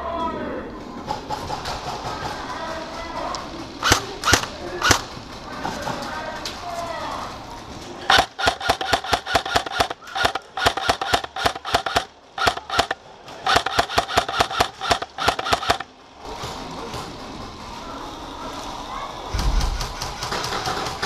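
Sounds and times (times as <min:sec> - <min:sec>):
airsoft rifle single shots: 0:03.8 - 0:05.1.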